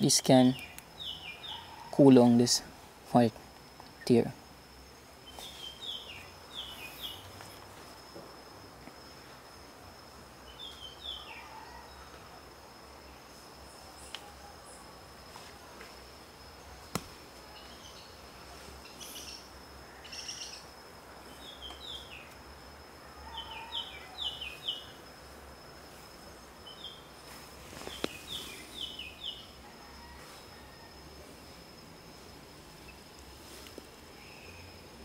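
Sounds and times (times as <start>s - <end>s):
birds chirping: 0.0s - 2.4s, 5.2s - 7.4s, 27.8s - 29.6s
faint high-pitched whine: 0.0s - 35.0s.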